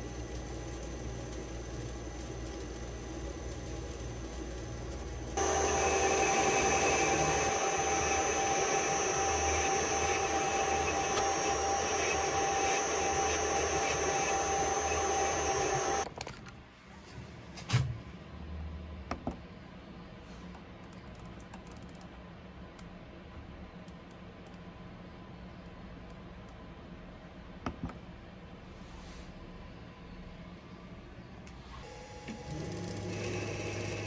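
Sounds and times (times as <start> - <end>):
lathe motor and gear whine: 0.0 - 16.1, 31.9 - 34.0.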